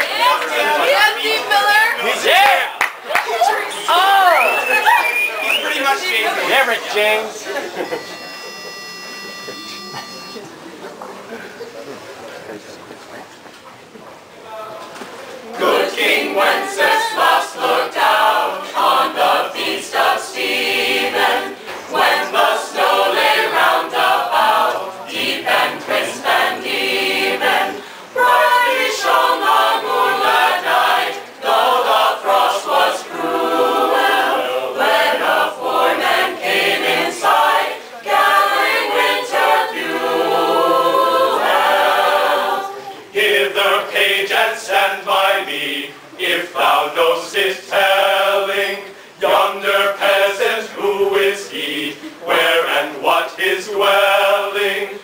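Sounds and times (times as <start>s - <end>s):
choir singing a cappella: 15.4s - 55.0s.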